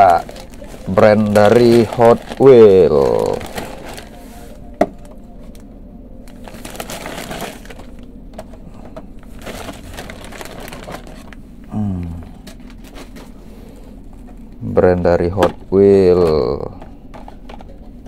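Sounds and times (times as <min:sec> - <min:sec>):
packaging rustling: 0:00.0 - 0:04.6, 0:06.2 - 0:08.5, 0:09.2 - 0:11.4
low hum falling in pitch: 0:11.2 - 0:12.6.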